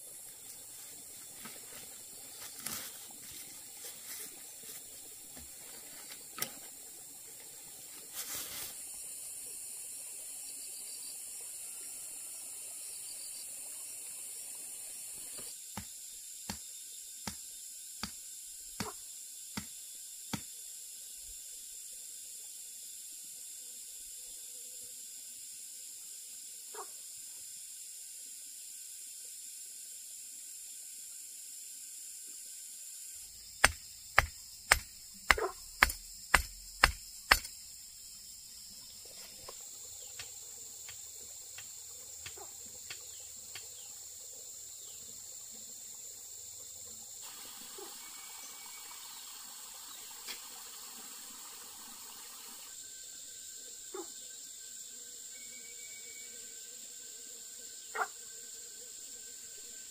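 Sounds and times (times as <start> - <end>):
sharp knocks: 33.6 - 37.5.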